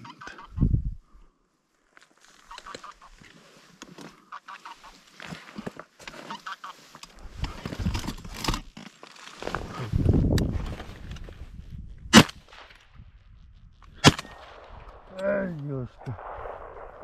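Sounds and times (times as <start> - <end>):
geese honking: 6.3 - 6.8.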